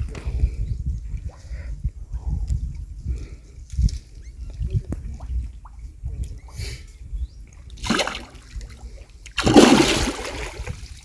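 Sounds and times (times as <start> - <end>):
fish splashing in water: 7.8 - 8.4, 9.4 - 10.8.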